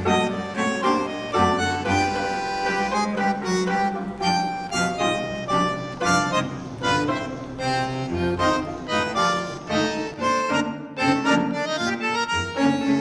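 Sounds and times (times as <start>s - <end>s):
instrumental background music: 0.0s - 13.0s.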